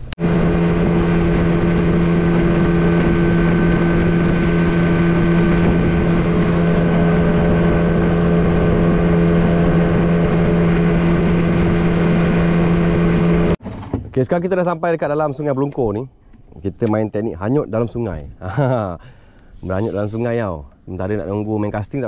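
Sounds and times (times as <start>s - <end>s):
motorboat engine hum: 0.0s - 13.8s.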